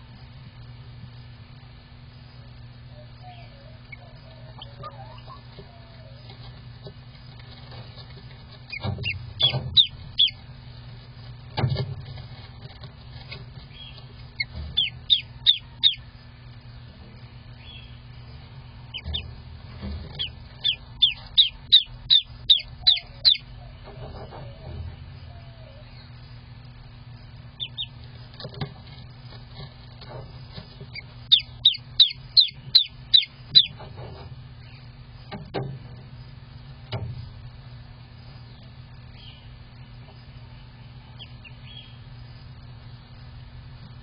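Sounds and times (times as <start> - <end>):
steady low hum: 0.0 - 44.0
duckling peeping: 2.8 - 11.2, 13.4 - 19.4, 20.0 - 33.9, 38.2 - 43.2.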